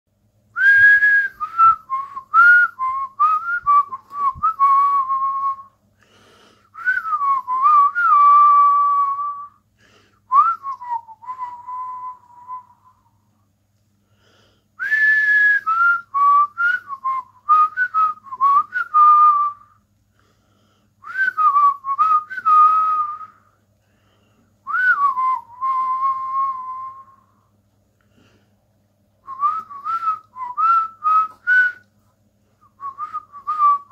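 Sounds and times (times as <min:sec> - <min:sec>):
man whistling: 0:00.6 - 0:05.8, 0:06.7 - 0:09.6, 0:10.3 - 0:13.2, 0:14.8 - 0:19.8, 0:21.0 - 0:23.5, 0:24.6 - 0:27.4, 0:29.2 - 0:31.9, 0:32.6 - 0:33.9.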